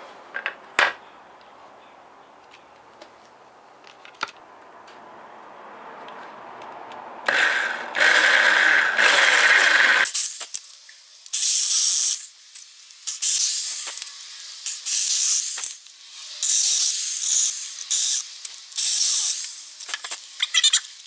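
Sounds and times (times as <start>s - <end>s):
power drill boring through plastic: 7.3s - 10.4s.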